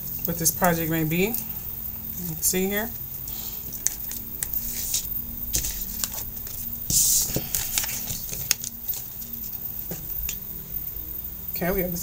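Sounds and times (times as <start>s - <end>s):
cards clicking and snapping: 3.7s - 9.2s
cards riffling: 3.7s - 9.4s.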